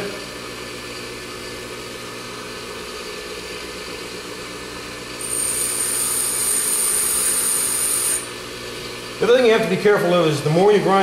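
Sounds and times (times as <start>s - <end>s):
bench grinder humming: 0.0s - 9.5s
high-pitched grinding hiss: 5.2s - 8.4s.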